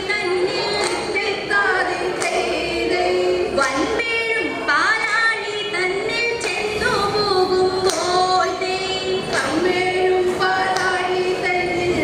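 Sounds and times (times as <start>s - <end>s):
woman singing through microphone: 0.0s - 12.0s
hand claps: 0.7s - 1.3s, 2.1s - 2.6s, 6.4s - 6.7s, 7.8s - 8.3s, 9.3s - 9.8s, 10.5s - 11.2s.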